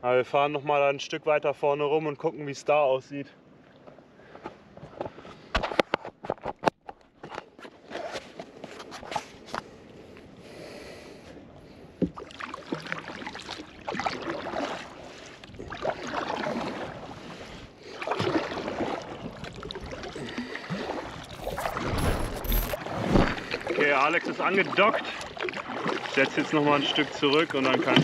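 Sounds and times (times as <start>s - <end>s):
kayak paddle swishing water: 12.0s - 28.0s
loud low thump: 21.4s - 23.8s.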